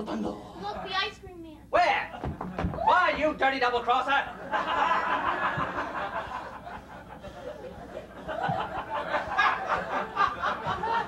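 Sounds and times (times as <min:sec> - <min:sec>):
audience laughing: 0:04.3 - 0:11.0.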